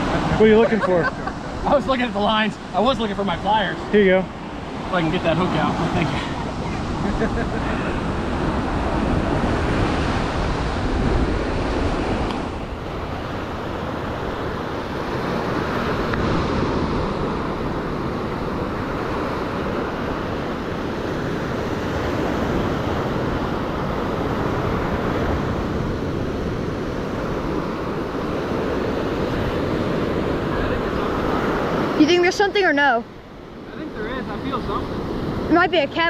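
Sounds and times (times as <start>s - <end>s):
surf breaking on beach: 0.0s - 32.8s
wind noise on microphone: 4.6s - 32.3s.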